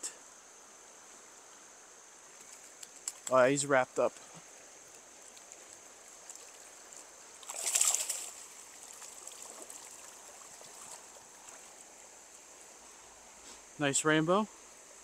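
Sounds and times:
stream trickling: 0:00.0 - 0:15.0
fish splashing at surface: 0:07.4 - 0:11.6.

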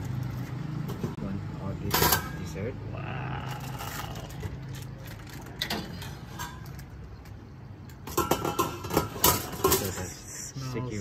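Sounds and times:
low street rumble: 0:00.0 - 0:11.0.

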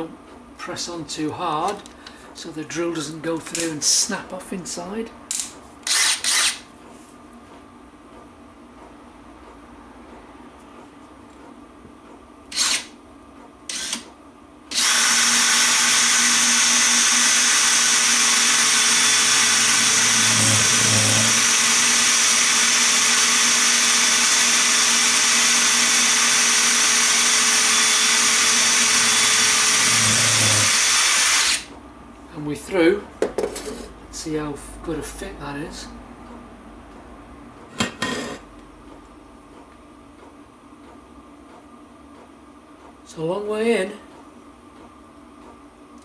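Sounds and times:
cordless drill drilling metal: 0:05.8 - 0:06.6, 0:12.5 - 0:12.9, 0:13.7 - 0:14.0, 0:14.7 - 0:31.7.

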